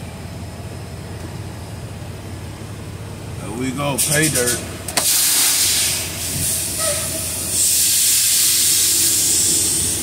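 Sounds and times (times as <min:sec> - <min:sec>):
truck engine idling: 0:00.0 - 0:10.0
air hissing: 0:04.0 - 0:10.0.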